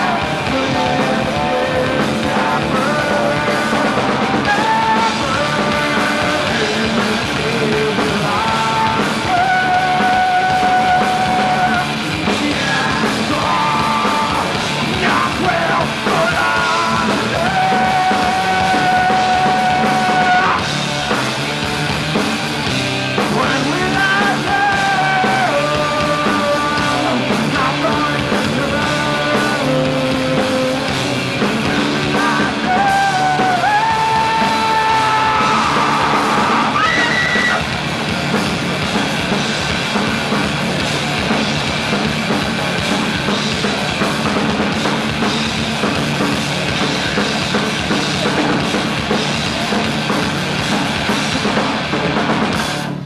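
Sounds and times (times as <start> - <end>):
punk rock band playing: 0.0 - 53.0
person yelling: 32.8 - 37.7.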